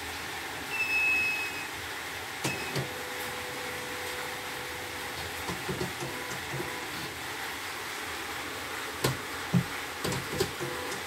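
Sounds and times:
embroidery machine hum: 0:00.7 - 0:11.0
sharp machine clicks and knocks: 0:09.0 - 0:11.0.

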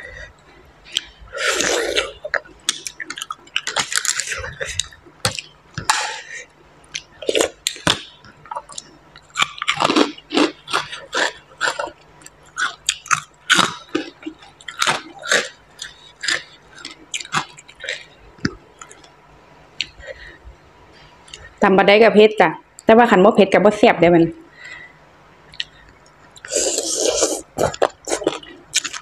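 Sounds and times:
chewing and crunching food: 0:00.0 - 0:19.2, 0:25.5 - 0:29.0.

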